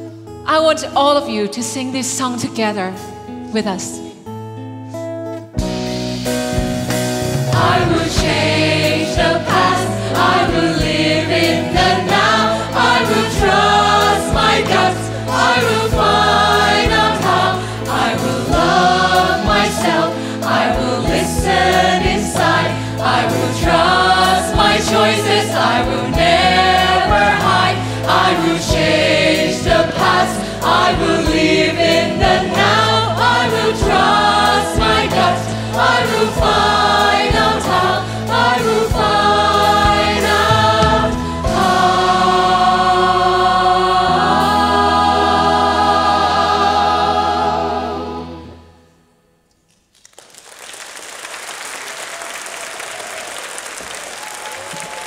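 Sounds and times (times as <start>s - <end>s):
backing music with bass notes: 4.3s - 48.7s
group singing: 7.4s - 48.8s
audience applauding: 49.9s - 55.0s.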